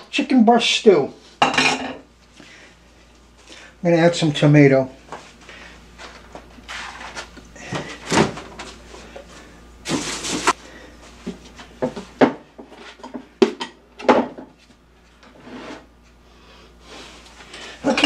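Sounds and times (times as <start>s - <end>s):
rustling scrape: 6.0s - 7.3s, 9.9s - 10.6s, 15.3s - 15.9s.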